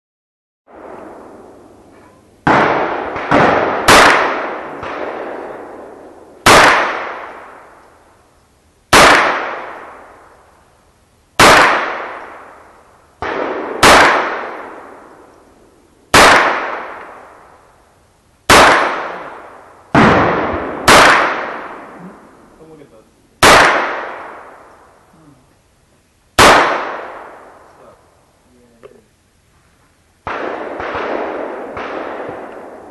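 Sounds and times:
pistol shots echoing: 0.7 - 7.7, 8.9 - 10.2, 11.4 - 12.6, 13.2 - 15.3, 16.1 - 17.4, 18.5 - 22.2, 23.4 - 24.7, 26.4 - 27.6, 30.2 - 32.9.

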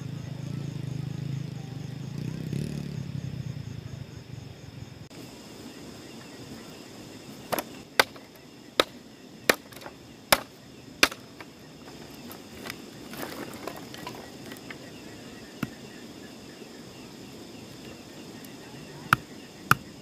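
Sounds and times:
rustling of split wood: 7.4 - 14.8
machete chopping firewood: 7.5 - 12.8, 19.1 - 19.9.

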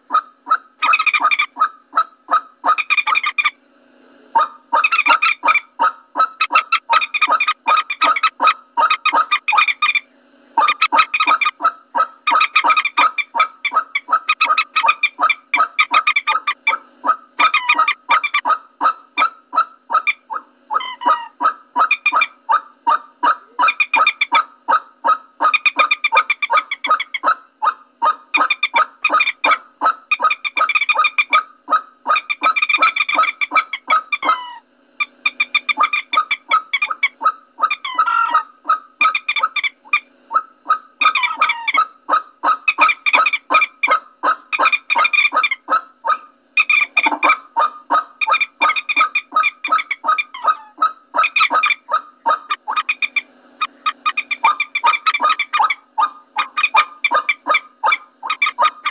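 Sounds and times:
moorhen calls: 0.0 - 3.5, 4.4 - 10.0, 10.6 - 27.3, 28.1 - 34.6, 35.3 - 58.9.

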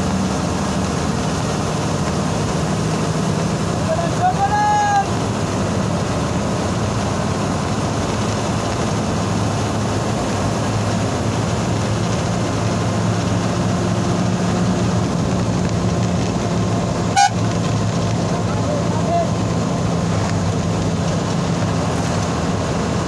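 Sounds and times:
road noise: 0.0 - 23.0
vehicle engine hum: 0.0 - 23.0.

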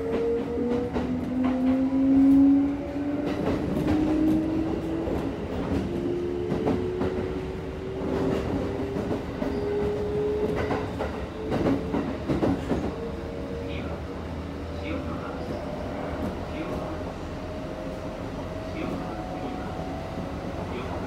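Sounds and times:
train running rumble: 0.0 - 21.0.

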